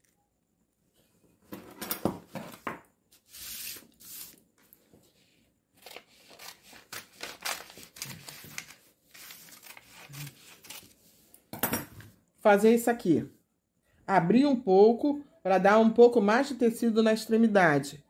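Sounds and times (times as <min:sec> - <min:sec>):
scissors snipping paper: 0:05.8 - 0:10.9
paper and fabric rustling: 0:05.8 - 0:11.3.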